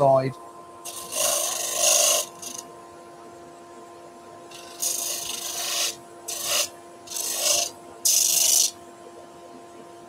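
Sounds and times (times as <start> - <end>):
sanding disc motor humming: 0.8 - 2.6, 4.5 - 8.8
wood rasping against sanding disc: 4.6 - 8.7.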